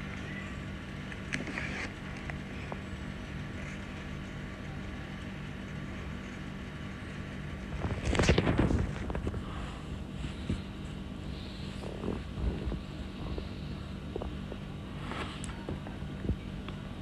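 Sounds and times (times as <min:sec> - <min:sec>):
steady low hum: 0:00.0 - 0:17.0
scratching and rustling: 0:01.1 - 0:02.8, 0:05.4 - 0:15.9.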